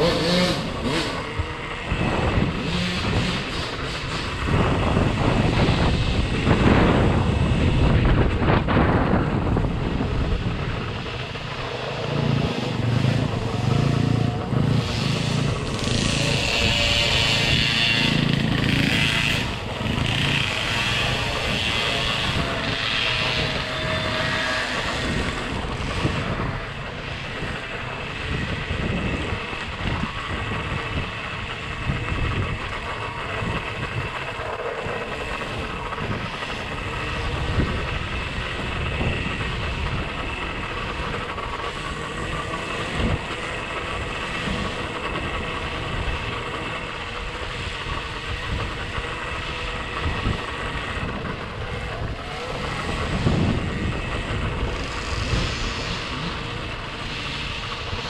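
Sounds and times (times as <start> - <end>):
electric motor whine: 0.0 - 58.0
wind buffeting microphone: 0.0 - 58.0.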